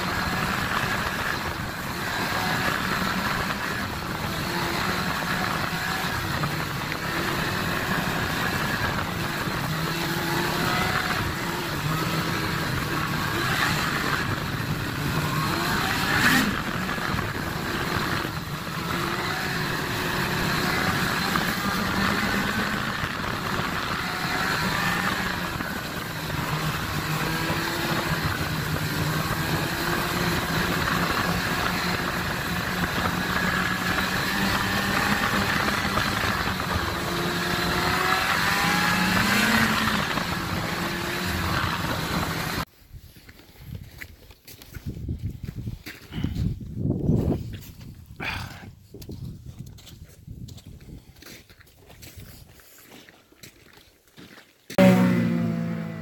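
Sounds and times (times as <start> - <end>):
snowmobile engine running: 0.0 - 42.7, 54.7 - 56.0.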